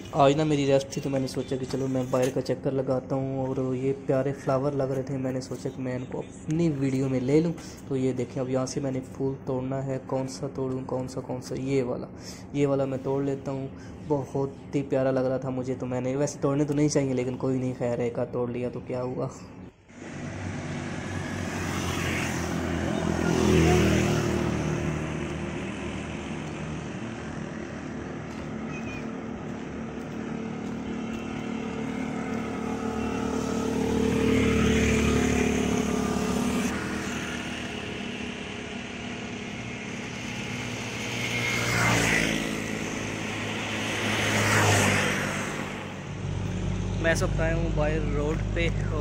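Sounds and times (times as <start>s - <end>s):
motorcycle engines passing by: 19.9s - 49.0s.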